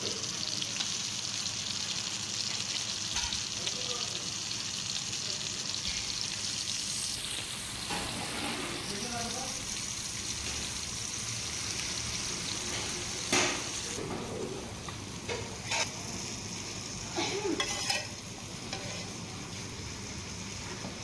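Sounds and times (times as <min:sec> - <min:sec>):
fish sizzling in hot oil: 0:00.0 - 0:21.0
spatula clinking and scraping: 0:15.3 - 0:15.9, 0:17.6 - 0:19.2.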